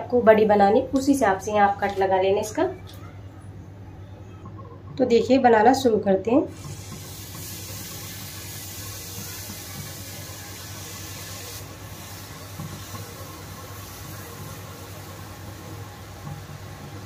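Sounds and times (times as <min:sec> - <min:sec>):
batter sizzling in hot oil: 0:06.5 - 0:17.0.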